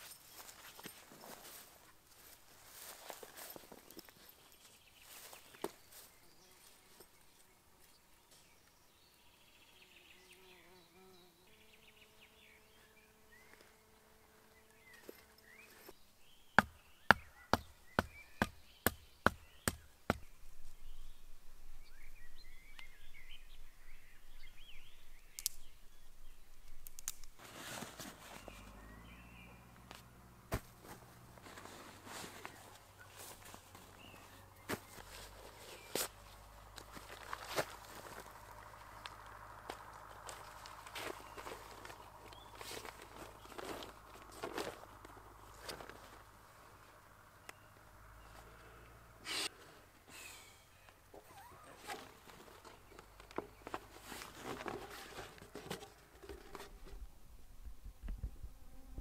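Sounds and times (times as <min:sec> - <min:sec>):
birds chirping: 0:02.2 - 0:27.1, 0:28.1 - 0:49.6.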